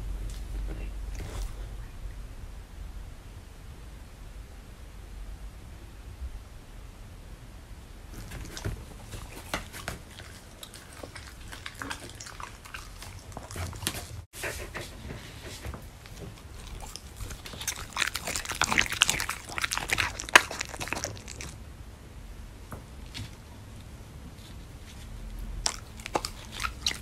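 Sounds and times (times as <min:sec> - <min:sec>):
dog chewing meat: 0:08.2 - 0:21.6, 0:25.5 - 0:27.0.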